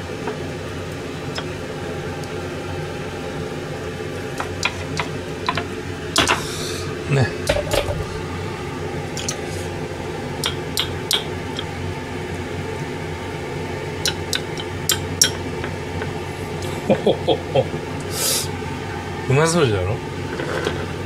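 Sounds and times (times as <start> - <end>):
steady low hum: 0.0 - 21.0
spoon clinking on ceramic dish: 14.1 - 15.4.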